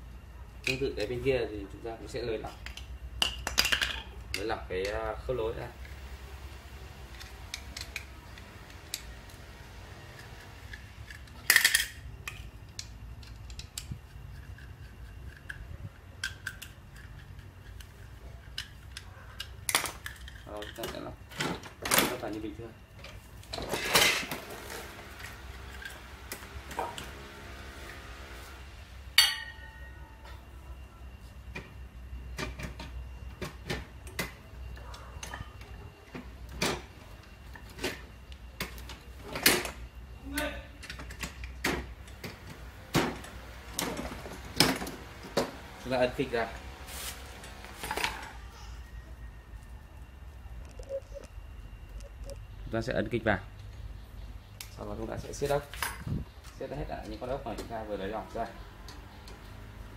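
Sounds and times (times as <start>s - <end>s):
metal parts clicking and clinking: 2.4s - 5.2s, 7.1s - 9.1s, 10.1s - 26.0s
sharp metallic clank: 29.2s - 30.0s.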